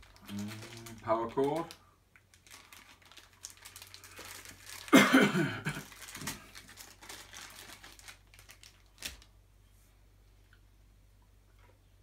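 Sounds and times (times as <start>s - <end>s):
plastic packaging crinkling: 0.0s - 9.4s.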